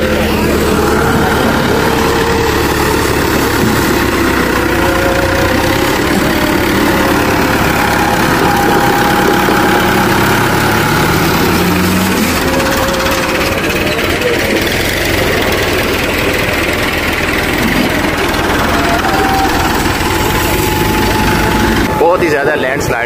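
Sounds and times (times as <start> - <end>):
tractor diesel engine running: 0.0 - 23.0.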